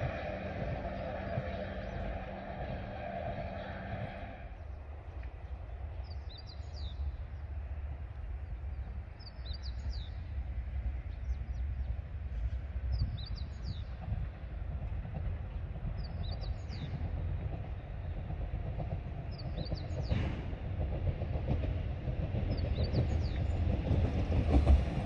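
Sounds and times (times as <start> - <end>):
low rumble: 0.0 - 4.8
songbird singing: 0.0 - 14.6, 15.5 - 20.2, 21.1 - 25.0.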